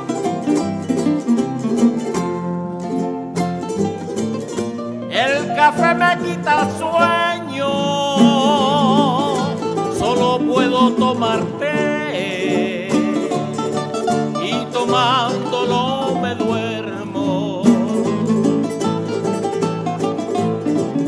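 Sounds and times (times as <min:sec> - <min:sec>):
strummed and plucked guitars: 0:00.0 - 0:21.0
man singing with vibrato: 0:05.1 - 0:19.1.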